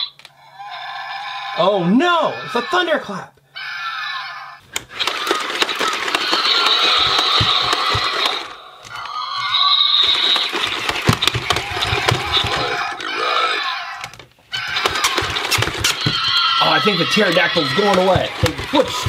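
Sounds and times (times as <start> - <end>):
electronic dinosaur roars: 0.4 - 2.7, 3.6 - 19.0
plastic toys knocking together: 4.7 - 13.1, 14.0 - 19.0.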